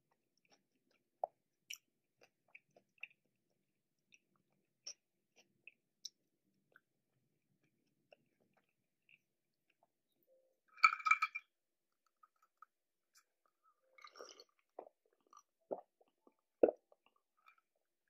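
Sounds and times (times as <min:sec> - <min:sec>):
ice cubes clinking in a glass: 0:10.8 - 0:11.5.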